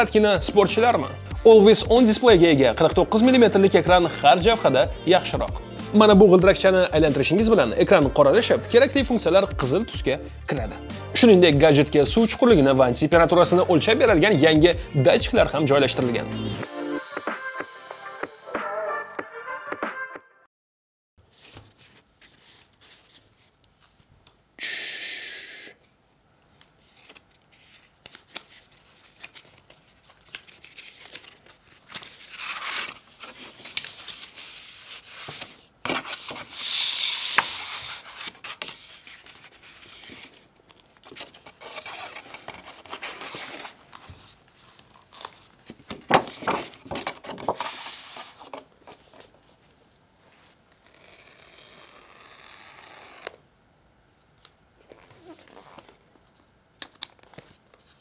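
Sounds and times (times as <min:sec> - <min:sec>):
paper rustling: 0:21.2 - 0:24.2, 0:26.6 - 0:49.7, 0:54.8 - 0:58.0
paper tearing: 0:29.0 - 0:40.4, 0:41.0 - 0:43.8, 0:50.7 - 0:53.4
cardboard rubbing and sliding: 0:32.0 - 0:40.5, 0:41.1 - 0:49.3.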